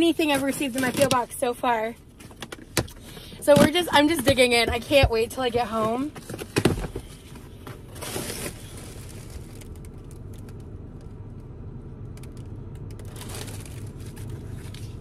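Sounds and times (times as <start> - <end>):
cardboard packaging crinkling and tearing: 7.8 - 10.4, 13.0 - 15.0.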